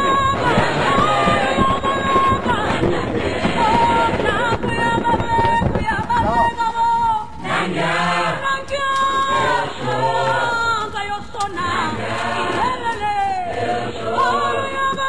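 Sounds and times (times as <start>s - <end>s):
choir singing: 0.0s - 4.7s, 7.4s - 15.0s.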